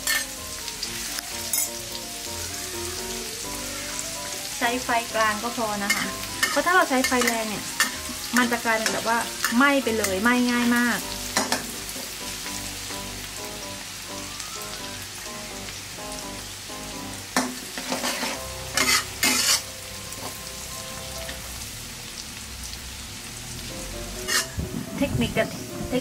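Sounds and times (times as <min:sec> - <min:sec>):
metal spatula scraping a wok: 0:00.0 - 0:00.4, 0:05.8 - 0:10.3, 0:17.4 - 0:20.4, 0:24.2 - 0:24.6
garlic sizzling in oil: 0:00.0 - 0:26.0.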